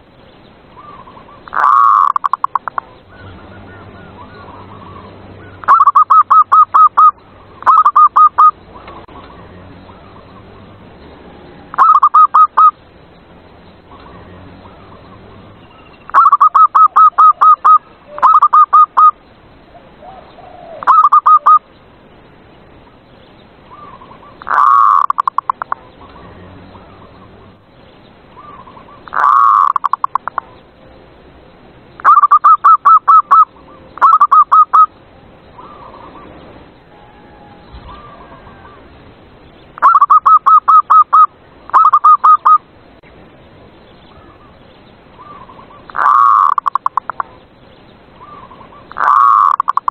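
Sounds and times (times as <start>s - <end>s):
dove cooing: 0.8s - 10.4s, 11.7s - 12.8s, 13.9s - 21.6s, 23.7s - 27.2s, 28.4s - 30.6s, 32.0s - 34.9s, 37.0s - 38.8s, 45.2s - 47.3s, 48.2s - 49.9s.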